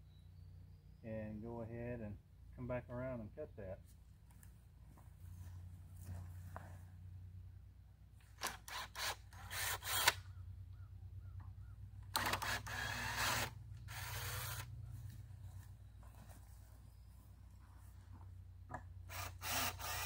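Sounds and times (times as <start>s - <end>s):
cordless drill whining: 8.4s - 10.2s, 12.2s - 14.7s, 19.1s - 20.0s.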